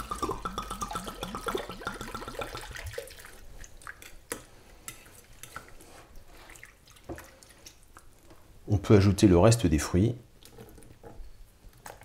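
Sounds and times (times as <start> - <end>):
faint wet squishing by hand: 2.6 - 8.5.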